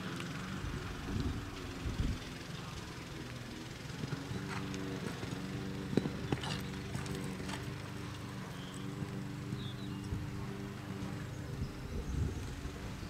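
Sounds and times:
steady low hum: 0.0s - 13.0s
canter hoofbeats: 4.0s - 11.7s
horse hooves thudding: 4.0s - 13.0s.

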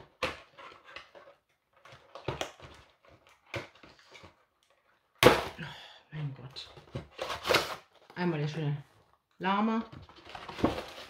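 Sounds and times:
packaging rustling and crinkling: 9.9s - 11.0s.

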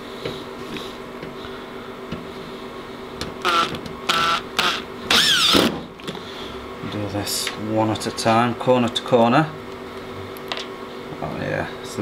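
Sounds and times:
cordless drill whirring: 3.4s - 5.7s.

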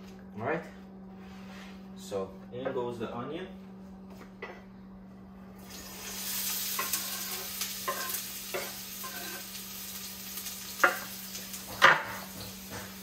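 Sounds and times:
onion sizzling in hot oil: 5.6s - 13.0s.

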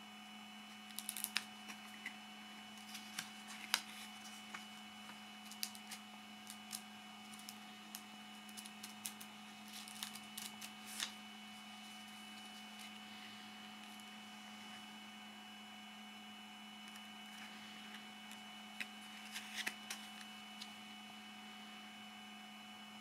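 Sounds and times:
steady hum: 0.0s - 23.0s
paper booklet clicks and rustles: 0.7s - 11.2s, 16.8s - 20.8s.

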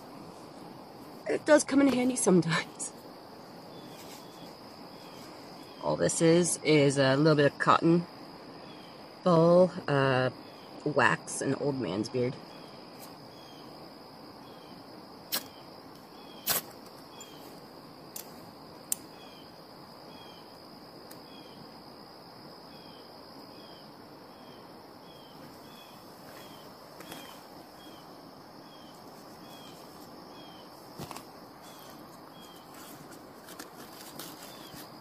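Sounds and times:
insect high drone: 0.0s - 35.0s
insect falling chirp: 15.3s - 19.5s, 25.1s - 35.0s.

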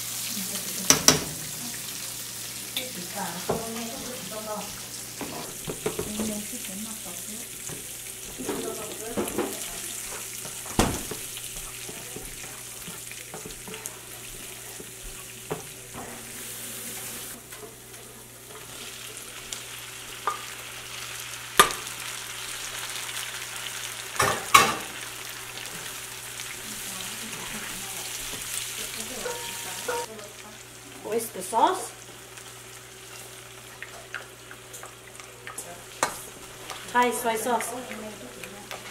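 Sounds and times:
sauce sizzling in frying pan: 0.0s - 38.9s
knocks against pan: 0.9s - 1.4s, 10.7s - 11.2s, 21.6s - 21.8s
spatula stirring: 7.6s - 19.5s.

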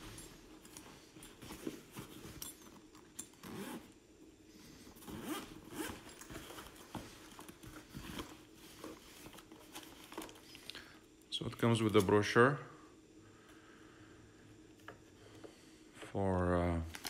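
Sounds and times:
bag rustling and knocking: 0.0s - 3.9s, 4.9s - 10.4s
zipper being pulled open: 3.4s - 4.0s, 5.0s - 6.6s.

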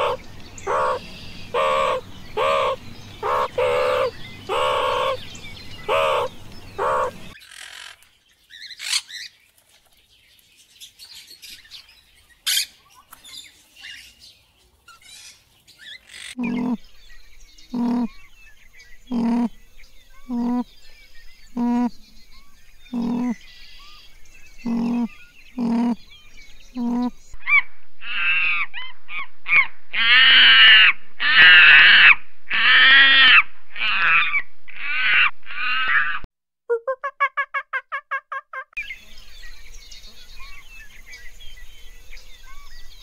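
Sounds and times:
animal calling: 0.0s - 8.0s, 15.0s - 16.8s, 17.7s - 18.2s, 19.1s - 19.6s, 20.2s - 20.7s, 21.5s - 22.0s, 22.9s - 23.4s, 24.6s - 26.1s, 26.8s - 27.4s.

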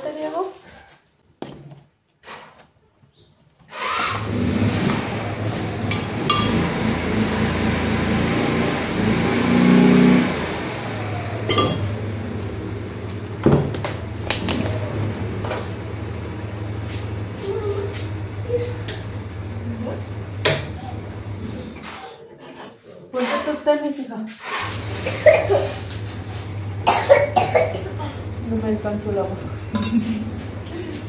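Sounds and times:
motor humming: 4.1s - 22.0s, 24.6s - 31.0s.

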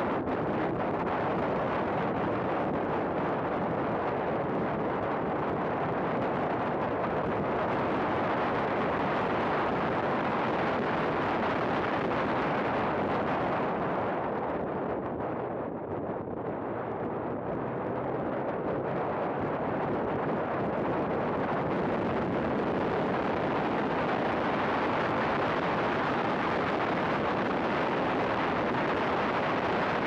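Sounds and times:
wind and road noise: 0.0s - 30.0s.

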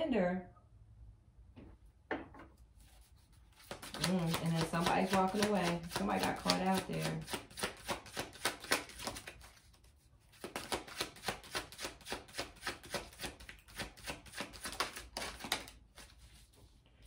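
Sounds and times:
cards being shuffled: 3.4s - 16.7s.

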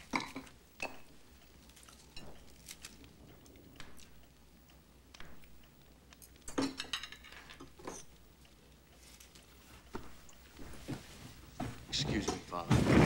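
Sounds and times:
cutlery clinking against plates: 6.4s - 8.2s.

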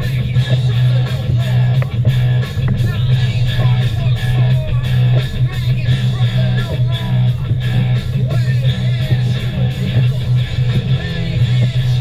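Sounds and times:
loud rock music: 0.0s - 12.0s.

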